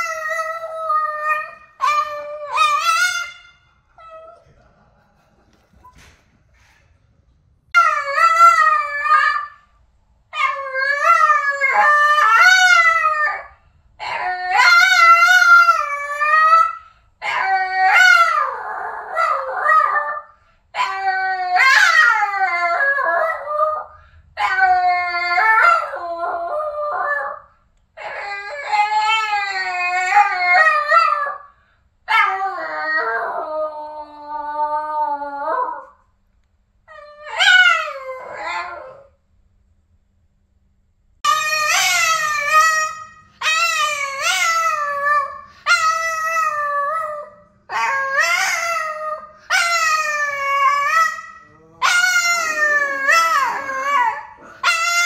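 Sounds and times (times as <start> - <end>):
dog howling: 0.0 - 4.5, 7.8 - 9.6, 10.3 - 27.4, 36.9 - 39.1, 41.3 - 55.0.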